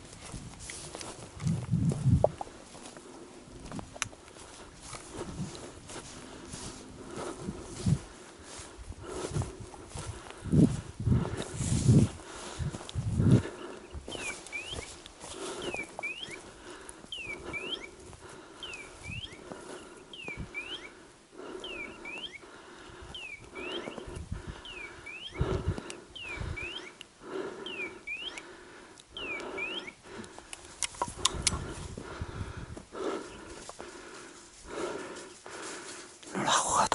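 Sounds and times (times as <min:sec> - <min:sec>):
beeper collar electronic chirp: 0:18.6 - 0:19.4, 0:20.2 - 0:20.9, 0:26.2 - 0:26.9, 0:27.6 - 0:28.4, 0:29.2 - 0:30.0.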